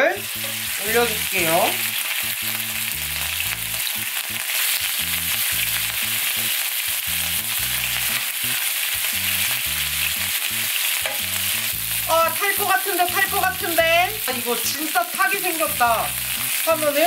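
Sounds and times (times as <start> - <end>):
meat sizzling in a frying pan: 0.0 - 17.0
low bass line: 0.2 - 12.4, 15.8 - 16.9.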